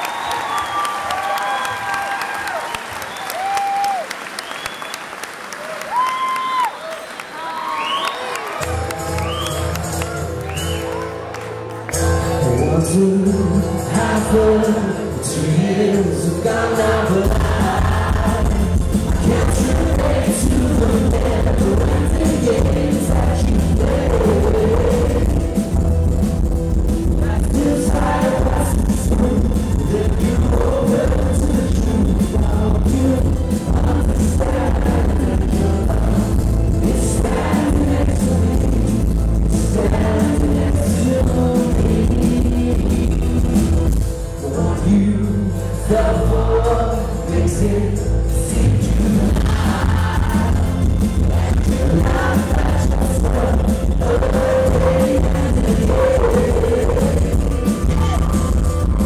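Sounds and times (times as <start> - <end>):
live band playing: 8.5 - 59.0
man singing: 12.4 - 25.6, 27.1 - 59.0.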